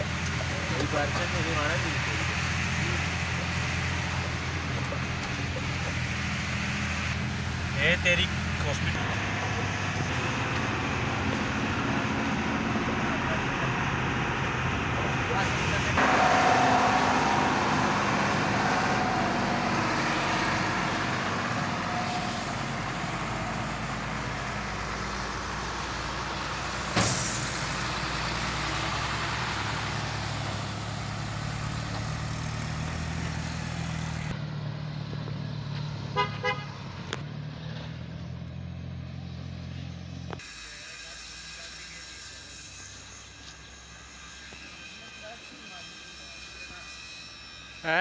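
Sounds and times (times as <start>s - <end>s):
diesel truck engine running: 0.0s - 45.6s
road noise: 0.0s - 48.0s
truck horn toots: 16.0s - 23.8s, 36.1s - 37.0s.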